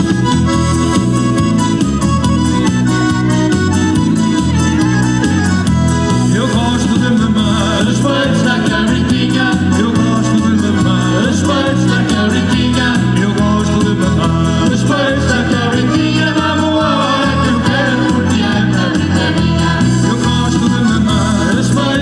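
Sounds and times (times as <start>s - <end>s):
live band playing pop music: 0.0s - 22.0s.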